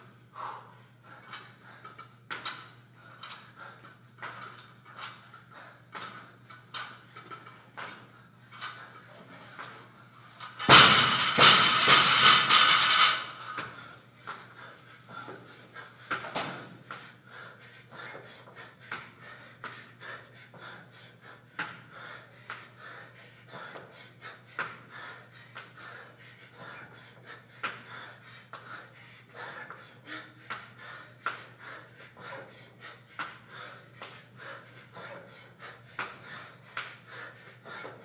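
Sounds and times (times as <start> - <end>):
man panting: 0.3 - 9.7, 10.7 - 38.0.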